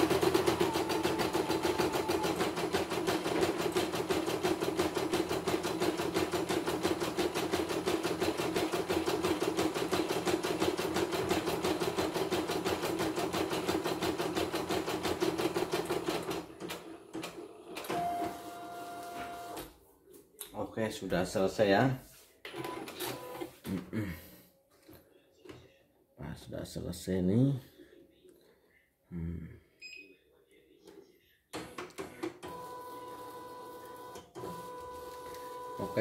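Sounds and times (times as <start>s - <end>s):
embroidery machine stitching: 0.0s - 18.2s.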